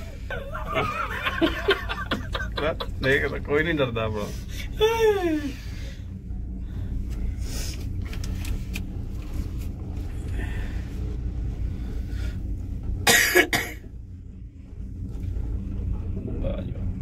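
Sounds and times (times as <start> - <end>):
steady low rumble: 0.0 - 17.0
person coughing: 13.1 - 13.8.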